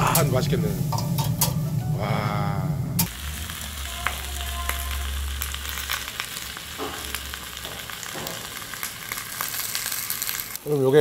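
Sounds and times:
pork sizzling and crackling: 0:00.0 - 0:01.9, 0:03.0 - 0:11.0
low hum: 0:00.0 - 0:07.6.

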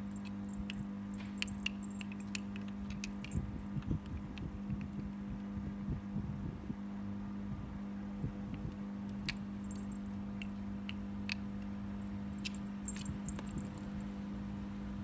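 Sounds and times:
steady low hum: 0:00.0 - 0:15.0
small collar bell tinkling: 0:09.6 - 0:10.1.

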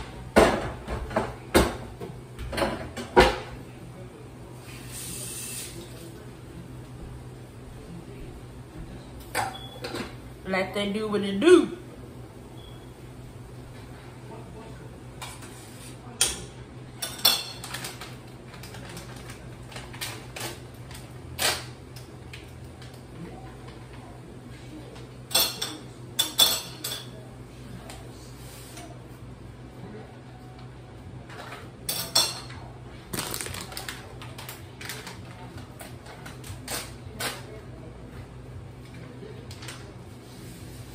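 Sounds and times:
dishes and utensils clinking: 0:16.2 - 0:18.2, 0:25.3 - 0:27.2, 0:31.3 - 0:32.7.

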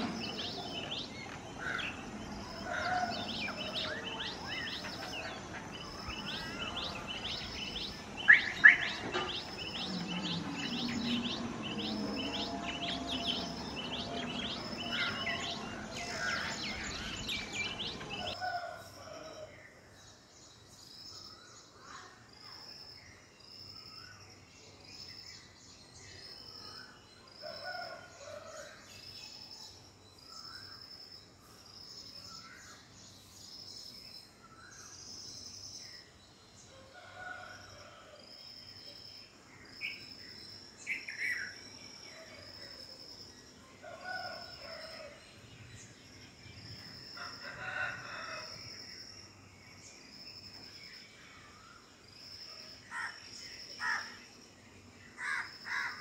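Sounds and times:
high-pitched repeated bird call: 0:00.0 - 0:18.3
lower bird calls: 0:00.0 - 0:18.3
birds calling in background: 0:00.0 - 0:56.0.

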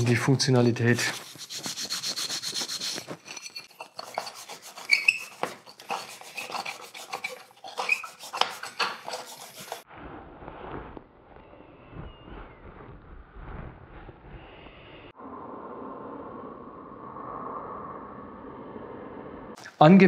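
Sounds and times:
metal parts scrubbed on pad: 0:00.9 - 0:09.8.

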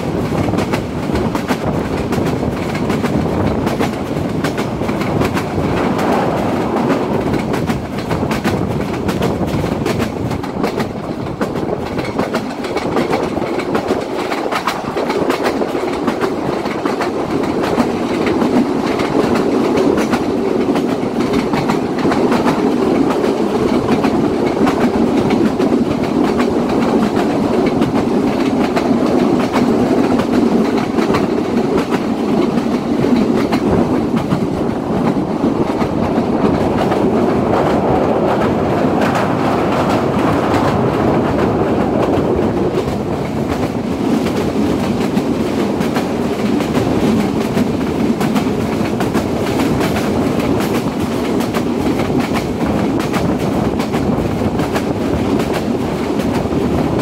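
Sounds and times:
train rumbling: 0:00.0 - 0:57.0
wheels clickety-clack over rail joints: 0:00.0 - 0:57.0.

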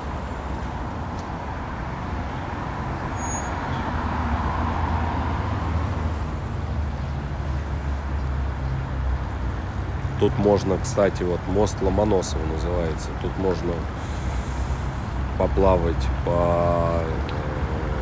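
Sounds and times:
vehicle rumbling past: 0:00.0 - 0:09.6, 0:13.8 - 0:18.0
street traffic road noise: 0:00.0 - 0:18.0.

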